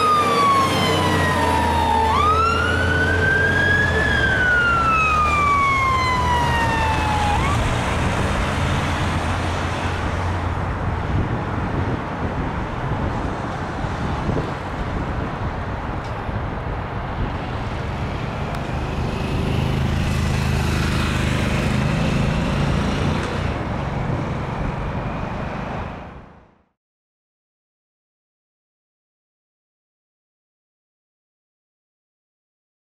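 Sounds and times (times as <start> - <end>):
siren gliding downward: 0.0 - 9.0
tyre and traffic noise: 0.0 - 26.6.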